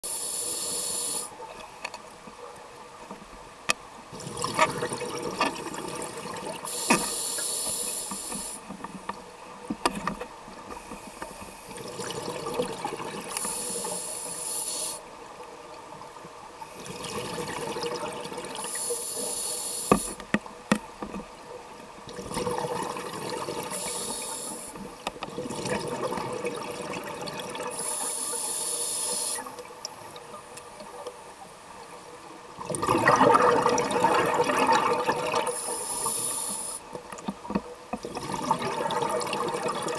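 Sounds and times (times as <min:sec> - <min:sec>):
regulator hiss: 0:00.0 - 0:01.4, 0:06.6 - 0:08.7, 0:13.3 - 0:15.1, 0:18.6 - 0:20.2, 0:23.7 - 0:24.9, 0:27.7 - 0:30.1, 0:35.5 - 0:36.9
exhaled bubbles rushing: 0:32.6 - 0:35.5, 0:38.1 - 0:39.9.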